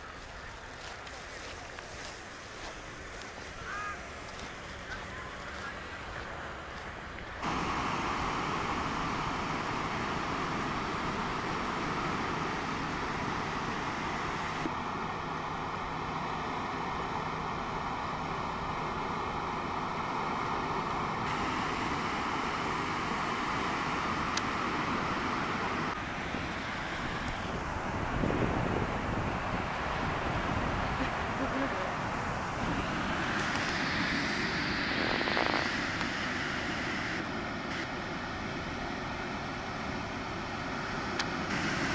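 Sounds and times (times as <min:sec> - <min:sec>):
ocean surf on sandy beach: 0:00.0 - 0:41.9
wind rumbling on microphone: 0:21.2 - 0:37.8.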